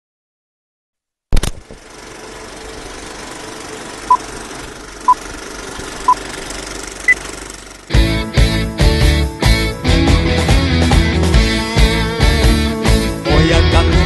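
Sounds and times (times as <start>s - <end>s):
film projector running: 1.6s - 8.0s
music: 7.9s - 14.0s.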